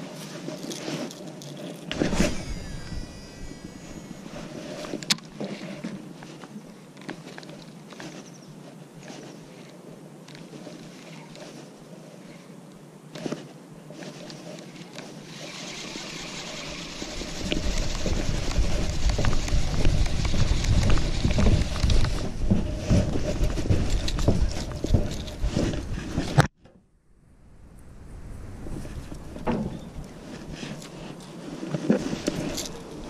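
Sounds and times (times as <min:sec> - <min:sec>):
handling knocks and rustles: 0:00.0 - 0:11.8, 0:17.5 - 0:26.8, 0:28.8 - 0:33.0
wind buffeting microphone: 0:01.9 - 0:04.3, 0:16.8 - 0:26.4, 0:27.5 - 0:30.7.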